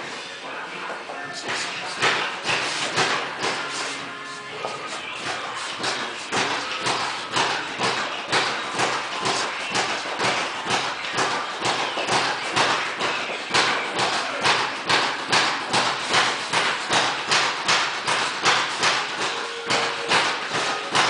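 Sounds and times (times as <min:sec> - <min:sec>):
music with percussive beat: 0:18.1 - 0:21.0.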